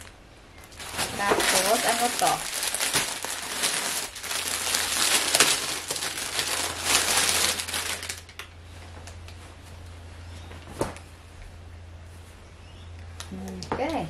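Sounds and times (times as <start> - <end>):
plastic bag crinkling: 0.0 - 8.5
steady low hum: 0.0 - 14.0.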